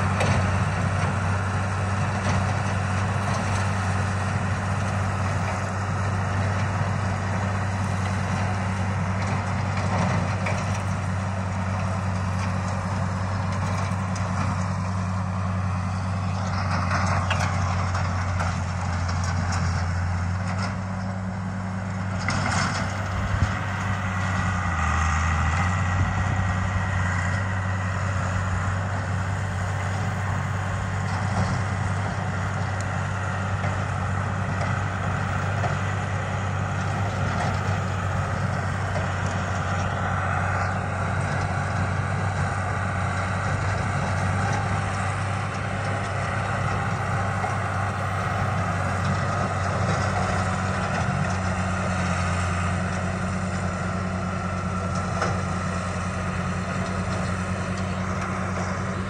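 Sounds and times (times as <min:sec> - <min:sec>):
rotary cutter mowing brush: 0:00.0 - 0:59.0
tractor engine running: 0:00.0 - 0:59.0.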